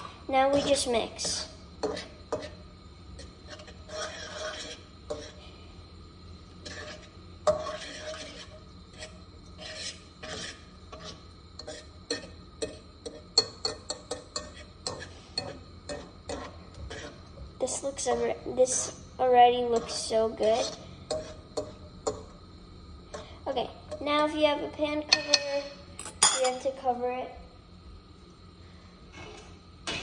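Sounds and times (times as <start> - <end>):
utensil scraping frying pan: 0.0 - 5.7, 6.3 - 22.3, 29.1 - 30.0
utensil tapping pan: 10.2 - 17.1.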